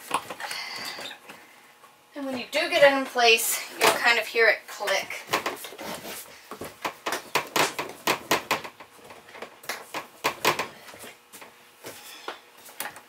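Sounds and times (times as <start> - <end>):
vinyl floor planks clicking: 5.3 - 11.5.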